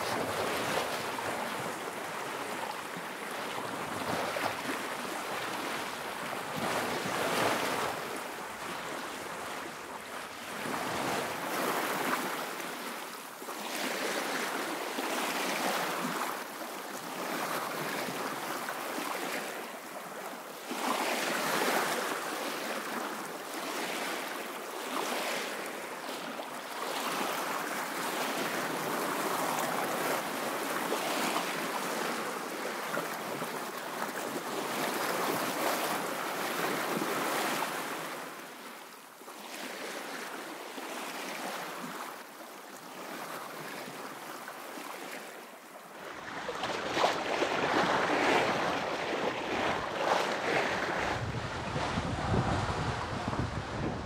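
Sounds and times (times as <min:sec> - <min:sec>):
sea water rushing and splashing: 0:00.0 - 0:54.0
wind noise: 0:49.4 - 0:54.0.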